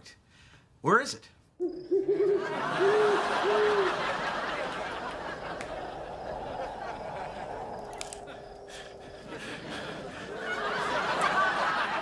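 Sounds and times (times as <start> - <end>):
owl hooting: 1.6 - 11.1
audience laughing: 2.0 - 12.0.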